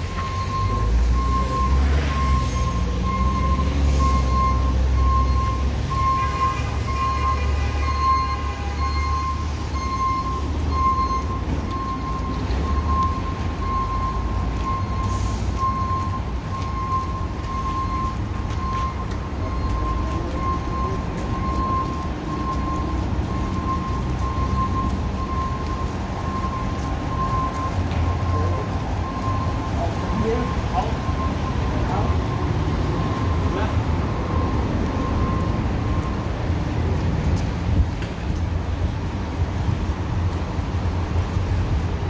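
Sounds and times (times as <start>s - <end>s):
vehicles rumbling: 0.0s - 42.0s
electronic beep: 0.1s - 15.1s.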